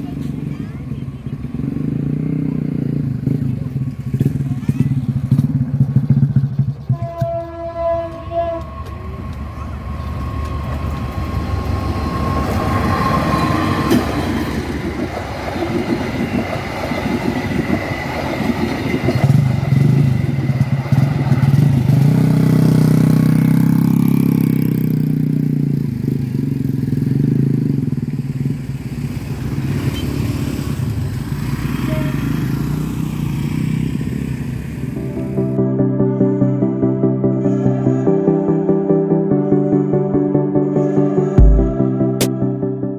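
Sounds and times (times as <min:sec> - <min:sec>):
train engine drone: 0:00.0 - 0:42.9
train wheels clattering on rails: 0:10.3 - 0:22.2.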